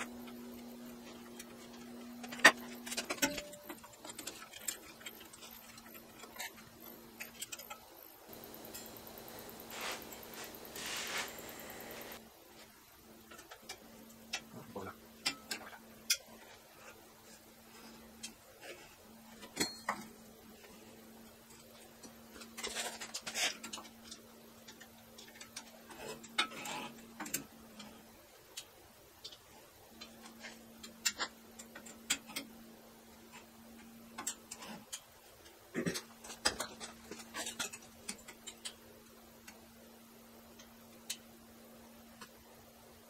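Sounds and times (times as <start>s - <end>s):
faint steady hum: 0.0s - 43.0s
small metal clicks and taps: 33.3s - 38.8s.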